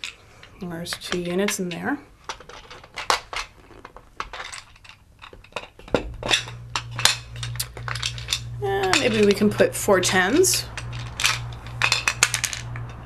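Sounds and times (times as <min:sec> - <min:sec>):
small pieces clicking on wooden board: 0:00.9 - 0:09.3, 0:10.6 - 0:13.0.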